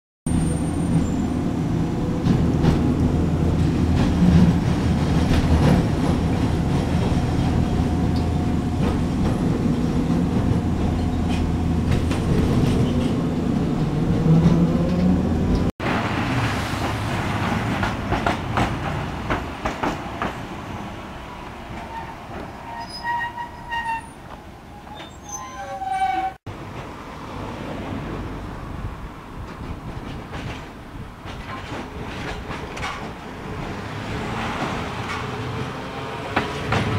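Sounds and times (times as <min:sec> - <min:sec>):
tram motors and wheels rumbling: 0:00.3 - 0:36.9
high wheel squeals: 0:21.8 - 0:26.4.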